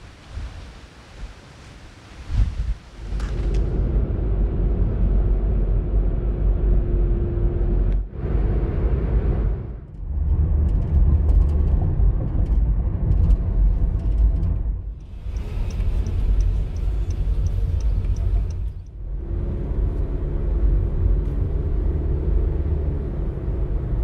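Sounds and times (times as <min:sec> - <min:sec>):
road and engine rumble in car: 0:00.0 - 0:24.0
light ticking: 0:15.0 - 0:19.0.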